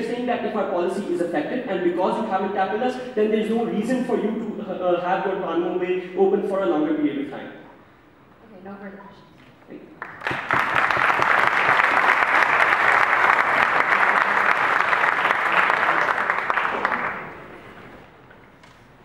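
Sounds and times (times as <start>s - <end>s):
audience applauding: 10.0s - 17.9s.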